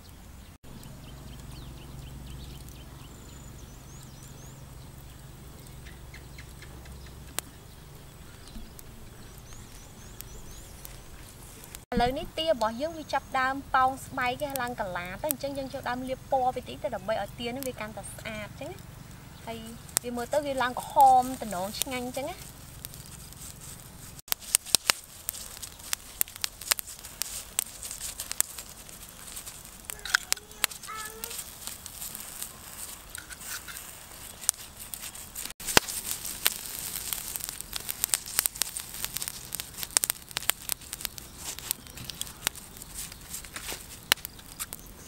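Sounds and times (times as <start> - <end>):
charcoal fire crackling: 0.0 - 45.0
basting brush rustling on skin: 19.5 - 44.8.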